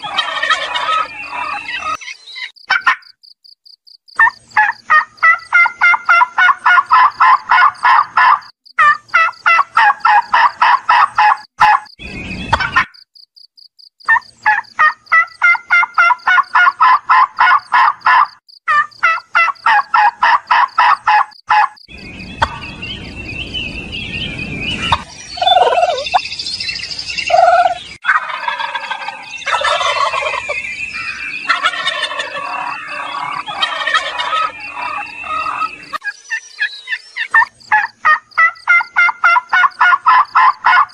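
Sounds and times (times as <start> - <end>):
turkeys gobbling: 0.0 - 3.1, 4.2 - 11.9, 12.5 - 13.0, 14.1 - 21.8, 22.4 - 22.8, 24.8 - 26.2, 27.3 - 36.1, 36.9 - 40.9.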